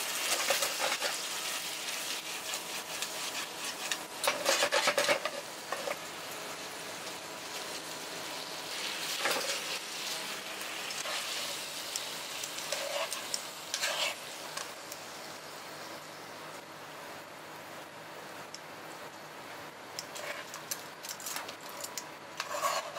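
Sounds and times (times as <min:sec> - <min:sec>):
metal tongs stirring food: 0:00.0 - 0:15.0, 0:20.0 - 0:22.9
food sizzling in frying pan: 0:00.0 - 0:16.2.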